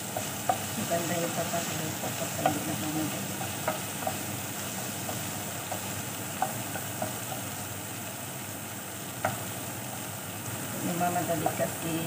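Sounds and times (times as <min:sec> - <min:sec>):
spatula stirring: 0:00.0 - 0:07.8
spatula tapping pan: 0:00.0 - 0:07.8, 0:09.1 - 0:10.1
vegetables sizzling in oil: 0:00.0 - 0:12.0.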